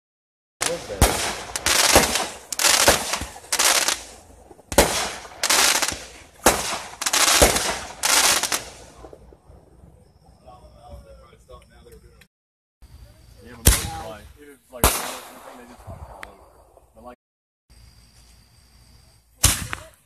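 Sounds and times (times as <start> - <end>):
firework hiss: 0.6 - 9.2
firework bangs: 0.6 - 9.8, 13.5 - 14.2, 14.8 - 16.8.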